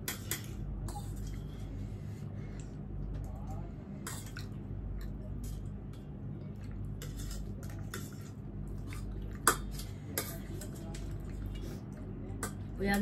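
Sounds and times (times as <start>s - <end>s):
cutlery scraping against a bowl: 0.0s - 1.5s, 7.0s - 11.1s.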